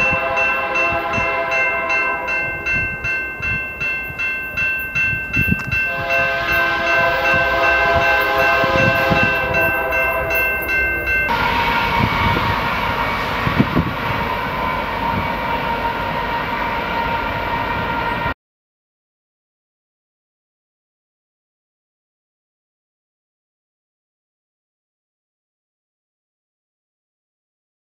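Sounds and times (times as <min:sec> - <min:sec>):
locomotive air horn: 0:00.0 - 0:02.7, 0:05.9 - 0:10.7, 0:11.3 - 0:18.3
freight train running by: 0:00.0 - 0:18.4
train rumbling: 0:00.0 - 0:18.4.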